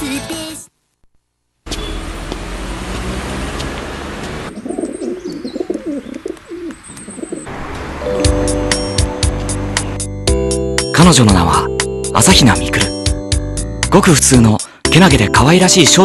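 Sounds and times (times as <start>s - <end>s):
pigeons cooing: 4.4s - 7.5s.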